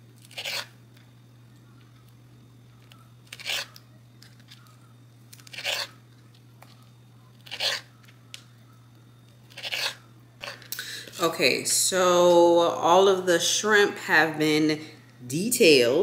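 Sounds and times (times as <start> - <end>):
knife crunching through shrimp tails: 0.2 - 0.7, 3.2 - 3.8, 5.3 - 6.0, 7.4 - 7.9, 9.5 - 10.7.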